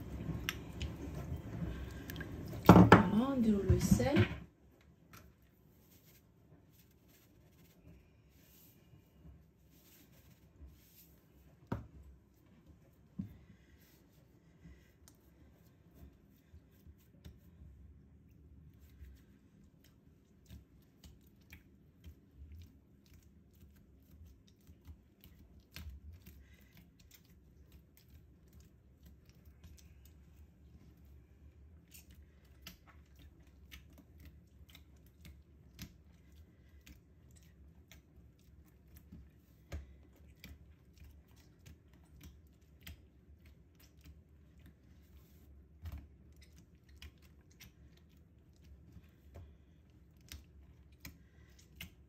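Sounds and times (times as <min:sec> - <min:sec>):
hands kneading dough: 0:00.0 - 0:52.0
low steady hum: 0:00.0 - 0:52.0.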